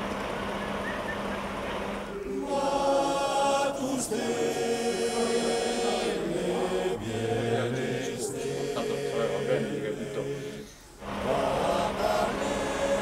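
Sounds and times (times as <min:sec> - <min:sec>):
low voice chanting: 0:02.0 - 0:13.0
choir chanting long notes: 0:02.1 - 0:13.0.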